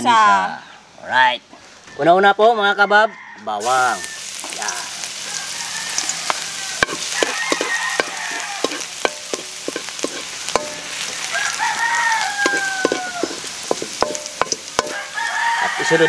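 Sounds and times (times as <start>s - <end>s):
rooster crowing: 2.6s - 9.1s, 10.6s - 16.0s
garlic sizzling in oil: 3.6s - 16.0s.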